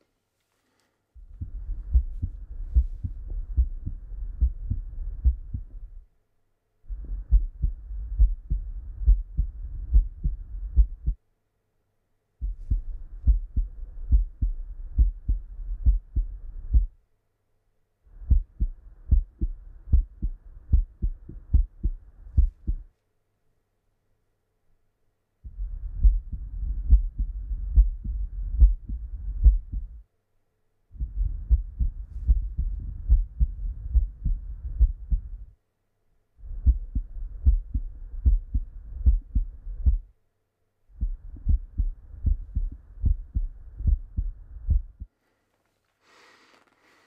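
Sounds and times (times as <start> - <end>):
heartbeat through stethoscope: 1.2 - 6.0, 6.9 - 11.2, 12.4 - 17.0, 18.1 - 22.9, 25.4 - 30.0, 30.9 - 35.6, 36.4 - 40.1, 40.9 - 45.1.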